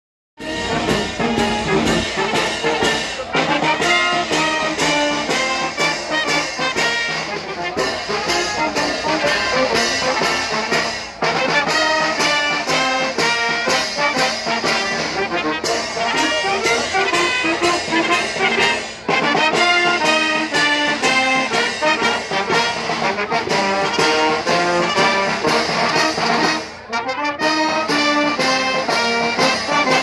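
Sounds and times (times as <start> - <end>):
bass drum and cymbals beat: 0.4 - 30.0
wind band playing: 0.4 - 30.0.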